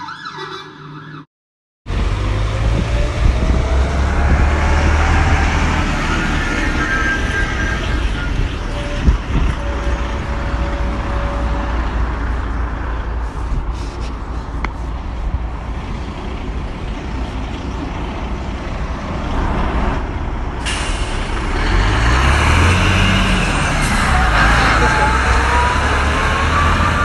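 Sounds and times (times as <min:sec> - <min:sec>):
heavy truck engine running: 0:01.9 - 0:27.0
road noise: 0:01.9 - 0:27.0
hiss: 0:20.6 - 0:21.4.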